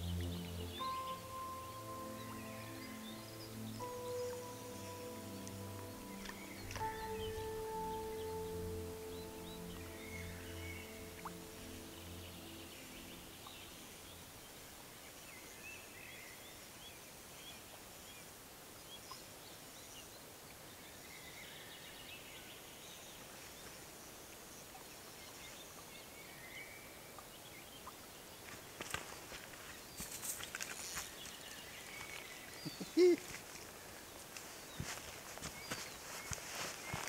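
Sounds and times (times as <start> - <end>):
soft background music: 0.0 - 16.1
birds chirping faintly: 0.0 - 37.0.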